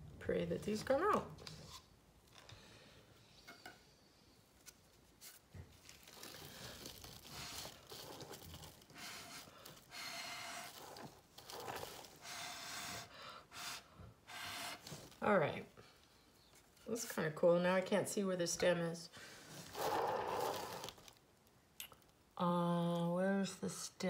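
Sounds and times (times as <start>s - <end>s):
breath puffs through a straw: 12.2s - 14.8s.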